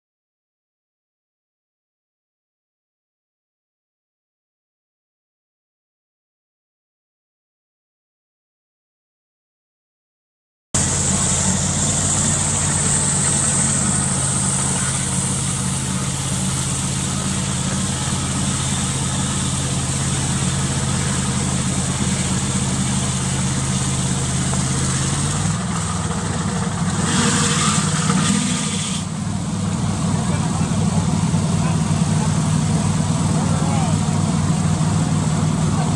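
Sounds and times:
engine idling: 10.8s - 35.9s.

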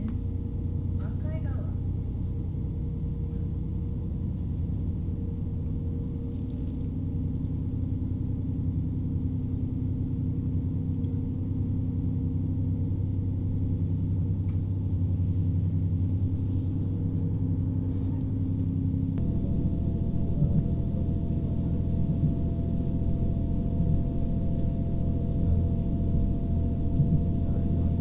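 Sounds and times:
train diesel engine drone: 0.0s - 28.0s
high whine: 19.1s - 28.0s.

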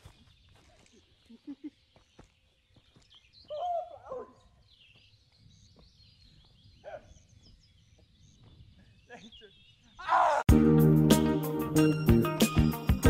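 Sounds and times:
small birds chirping: 0.0s - 10.1s.

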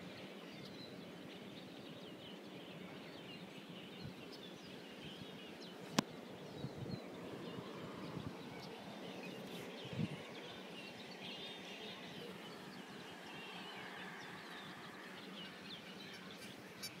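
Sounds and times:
small birds chirping: 0.0s - 17.0s
steady background hiss: 0.0s - 17.0s.

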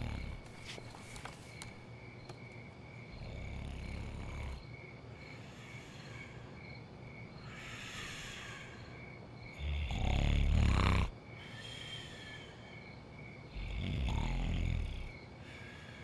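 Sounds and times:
person snoring: 0.0s - 0.4s, 9.6s - 11.1s, 13.5s - 15.1s
crickets chirping: 0.0s - 16.0s.

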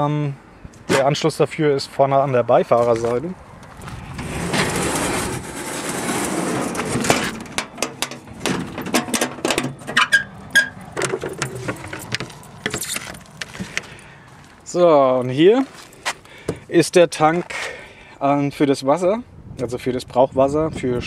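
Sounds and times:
drawer sliding shut: 4.2s - 7.6s
short squeaks: 9.7s - 13.4s.

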